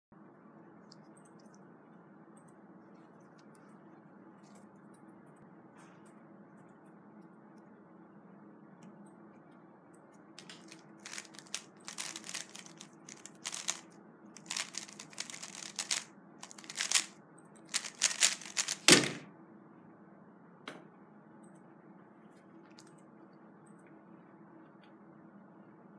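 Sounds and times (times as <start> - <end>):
puzzle cube clicking turns: 10.4 - 13.8, 14.4 - 17.1, 17.7 - 19.0.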